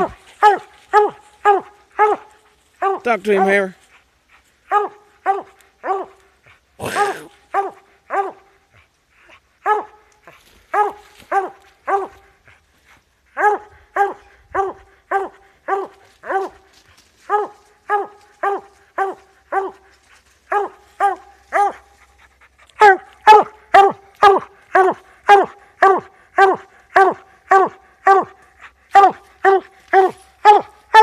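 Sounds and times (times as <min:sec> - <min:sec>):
dog chop barking: 0:04.7 - 0:06.2, 0:10.7 - 0:12.2, 0:20.5 - 0:21.8, 0:22.8 - 0:28.4, 0:29.0 - 0:31.0.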